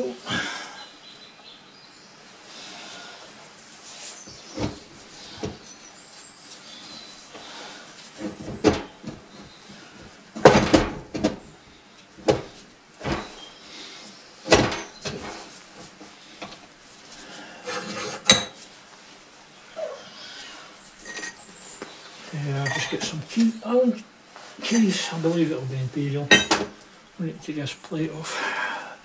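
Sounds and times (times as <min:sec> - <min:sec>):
metal knocks and clatter: 0:08.2 - 0:09.3, 0:10.4 - 0:11.5, 0:12.2 - 0:13.4, 0:14.5 - 0:15.4.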